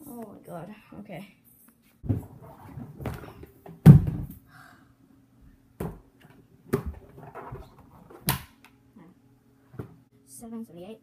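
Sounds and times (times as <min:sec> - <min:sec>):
plastic bin thudding and knocking: 0:02.9 - 0:04.4.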